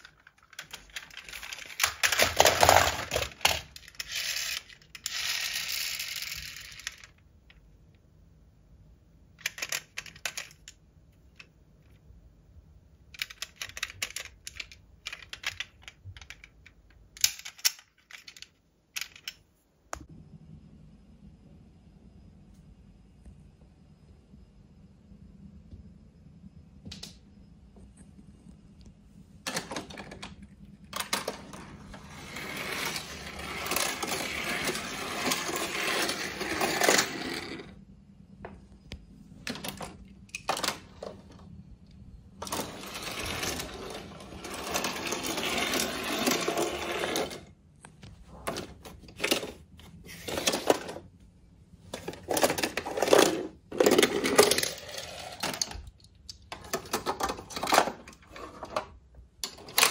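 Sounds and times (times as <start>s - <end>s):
toy cars rattling down plastic ramps: 0.0s - 7.2s, 13.2s - 19.4s, 31.0s - 37.7s, 42.4s - 47.5s, 50.2s - 51.1s, 51.9s - 55.9s, 56.5s - 59.9s.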